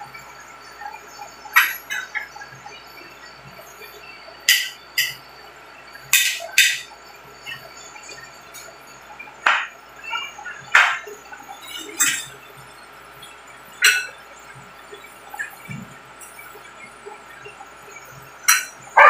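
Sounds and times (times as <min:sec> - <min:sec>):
plates knocking on table: 0:09.5 - 0:09.7, 0:10.7 - 0:11.0.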